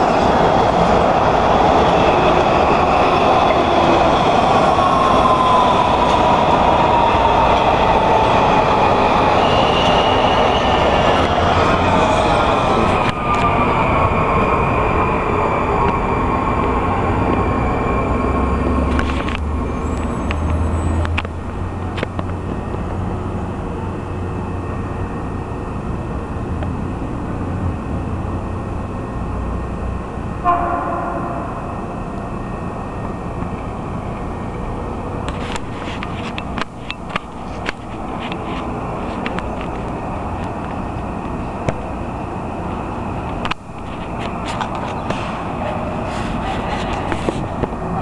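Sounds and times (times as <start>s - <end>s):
train rumbling and whining: 0.0s - 48.0s
short train horn toot: 30.4s - 31.9s.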